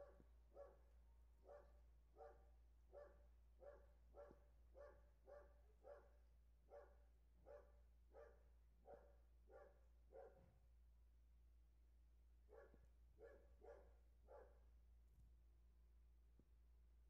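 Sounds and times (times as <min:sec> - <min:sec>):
dog barking faintly: 0:00.0 - 0:10.5, 0:12.5 - 0:14.6.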